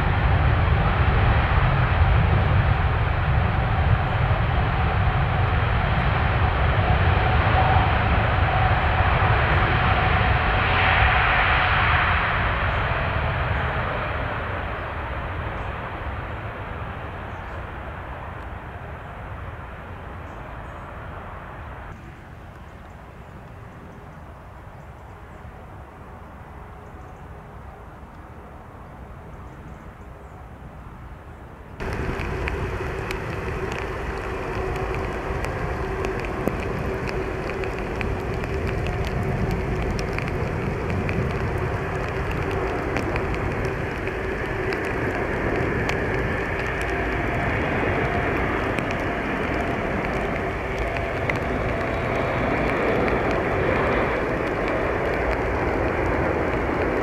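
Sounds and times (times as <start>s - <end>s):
jet engine noise: 0.0s - 57.0s
steady hum: 31.8s - 57.0s
steady rush: 31.8s - 57.0s.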